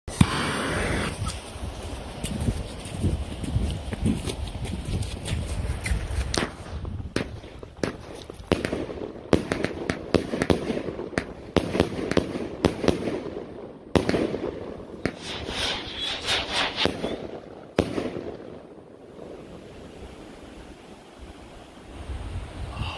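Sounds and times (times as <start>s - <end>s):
firework shots and aerial bursts: 0.1s - 1.5s, 6.3s - 19.5s
firework crackle: 0.1s - 1.8s, 14.0s - 19.8s.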